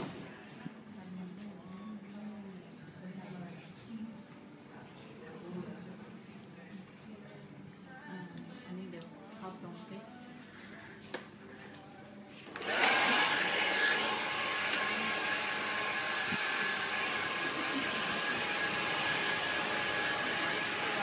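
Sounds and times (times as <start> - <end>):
hair dryer blowing: 12.5 - 21.0.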